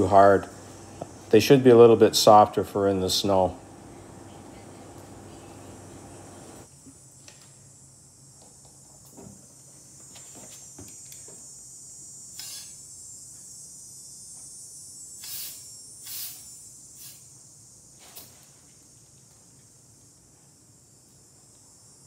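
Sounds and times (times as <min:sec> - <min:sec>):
tire inflator hissing: 0:12.2 - 0:13.4, 0:14.4 - 0:17.4.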